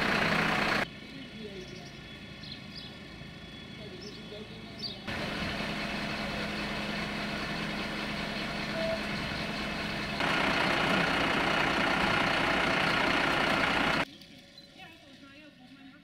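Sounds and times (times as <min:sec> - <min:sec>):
diesel engine idling: 0:00.0 - 0:00.9, 0:05.1 - 0:14.0.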